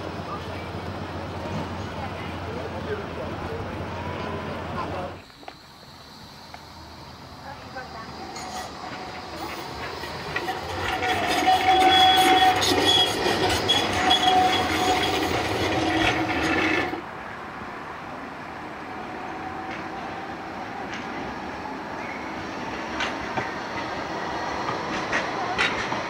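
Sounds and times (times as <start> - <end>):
street traffic: 0.0 - 26.0
tram rolling past: 0.0 - 26.0
high-pitched tram tones: 6.5 - 17.1.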